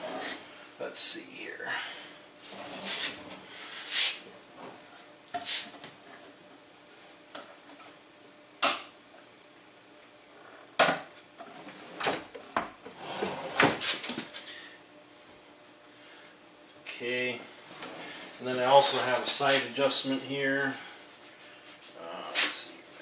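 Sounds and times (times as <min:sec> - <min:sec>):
wooden drawers opening and shutting: 0:13.0 - 0:13.9.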